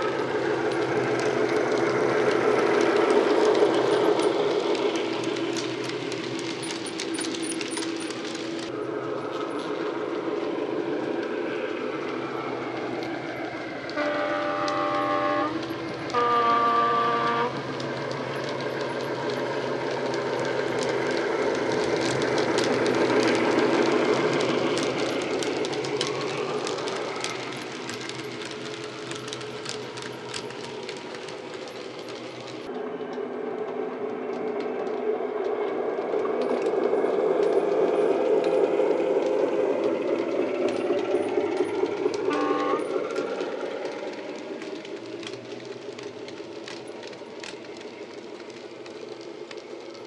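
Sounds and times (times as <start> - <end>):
model wheels clicking on track: 0.0 - 32.7, 33.6 - 50.0
model locomotive engine sound: 0.0 - 50.0
two-tone train horn: 13.9 - 17.6, 42.3 - 43.0.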